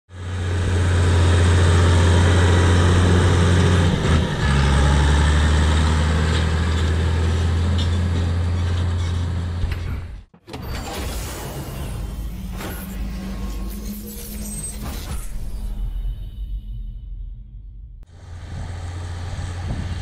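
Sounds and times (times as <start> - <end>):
tractor diesel engine under load: 0.1 - 9.8, 18.1 - 20.0.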